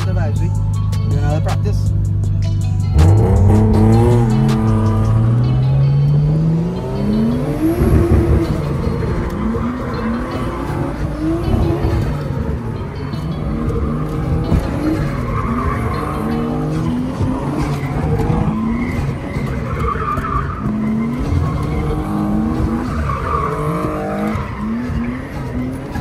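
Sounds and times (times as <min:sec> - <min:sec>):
car engine revving: 0:00.0 - 0:26.0
tyres squealing: 0:08.3 - 0:26.0.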